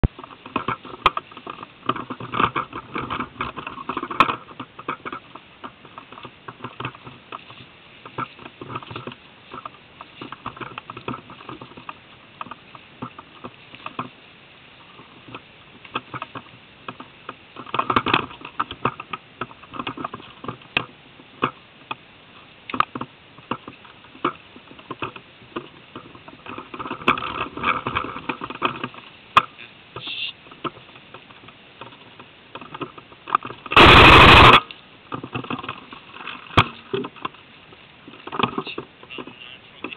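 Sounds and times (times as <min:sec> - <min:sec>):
rustling leaves and twigs: 0:00.0 - 0:39.9.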